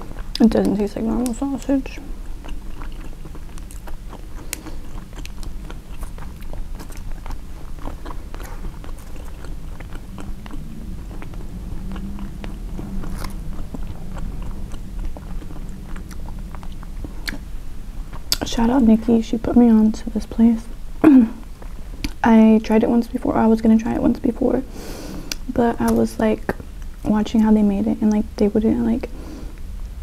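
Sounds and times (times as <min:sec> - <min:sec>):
close chewing and biting: 0:00.1 - 0:18.5.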